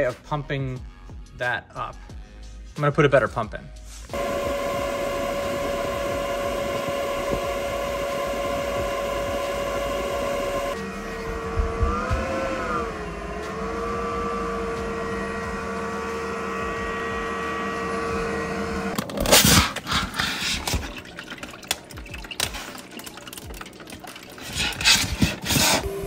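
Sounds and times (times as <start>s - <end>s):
duct fan humming: 4.1s - 26.0s
knocks and handling sounds: 19.0s - 25.9s.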